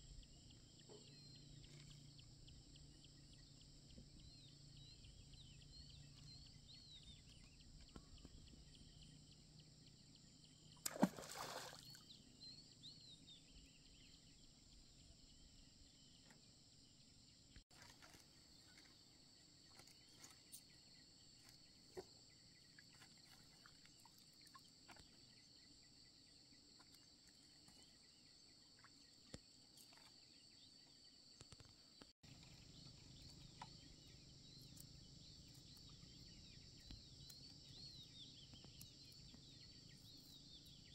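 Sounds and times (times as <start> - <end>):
faint bird chirping: 0.0 - 40.9
insects chirping: 0.0 - 40.9
water splash: 10.8 - 12.0.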